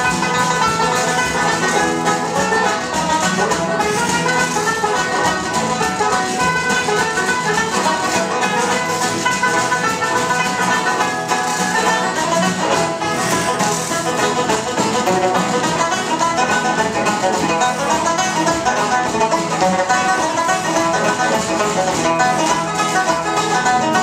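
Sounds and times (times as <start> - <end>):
frame drum beating: 0.0 - 24.0
tenor banjo and guitars playing: 0.0 - 24.0.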